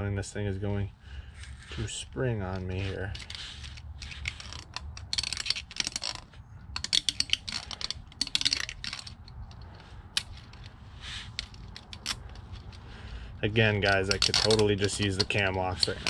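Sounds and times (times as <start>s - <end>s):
sharp metallic clicks and rattles: 2.6s - 13.0s, 13.6s - 16.0s.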